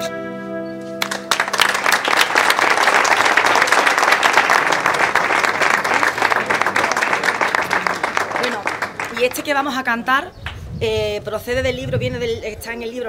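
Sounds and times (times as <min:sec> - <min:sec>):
held music chord: 0:00.0 - 0:01.5
audience applauding: 0:01.0 - 0:09.6.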